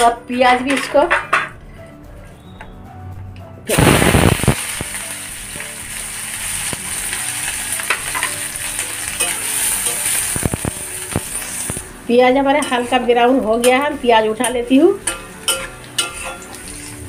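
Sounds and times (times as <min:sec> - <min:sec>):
onions sizzling in hot oil: 0:03.7 - 0:17.0
metal spatula scraping pan: 0:12.6 - 0:17.0.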